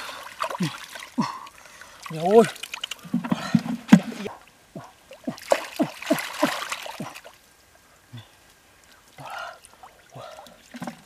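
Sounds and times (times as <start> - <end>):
hands splashing in muddy puddle: 5.3 - 7.3.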